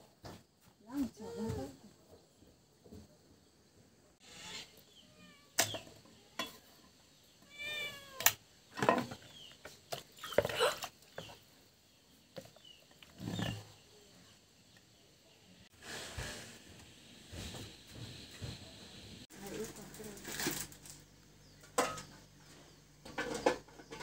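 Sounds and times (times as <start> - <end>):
cats meowing: 4.4 - 5.6, 7.4 - 8.4.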